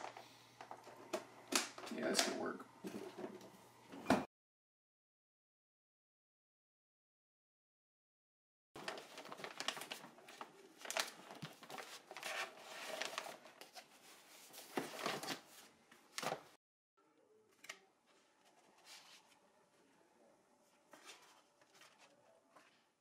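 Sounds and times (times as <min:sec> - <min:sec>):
papers rustling in plastic bin: 0:08.8 - 0:16.6.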